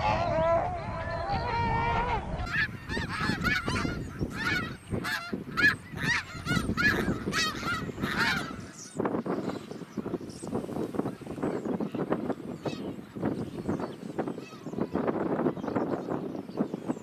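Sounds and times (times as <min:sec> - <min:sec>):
geese honking: 0:01.5 - 0:10.2.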